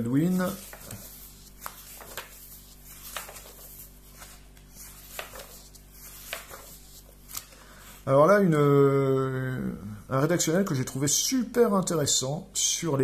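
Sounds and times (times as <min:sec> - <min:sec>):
low steady hum: 0:00.0 - 0:13.0
magazine pages turning: 0:00.2 - 0:08.0.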